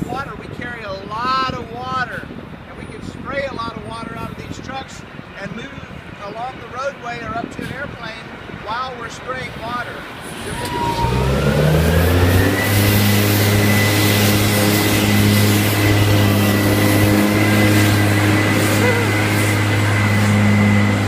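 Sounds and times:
high steady whine: 7.9s - 21.0s
truck diesel engine revving: 10.1s - 21.0s.

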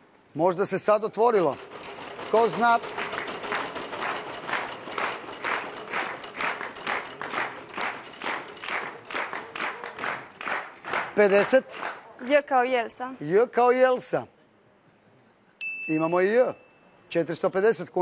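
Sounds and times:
prize wheel clicking: 1.3s - 9.4s.

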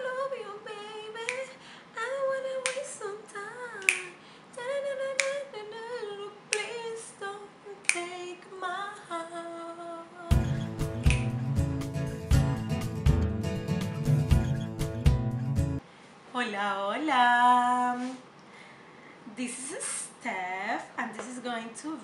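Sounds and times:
woman singing unaccompanied: 0.0s - 11.6s
finger snapping: 1.3s - 1.5s, 2.6s - 2.9s, 3.8s - 4.2s, 5.2s - 5.4s, 6.5s - 6.8s, 7.8s - 8.1s, 10.4s - 11.5s.

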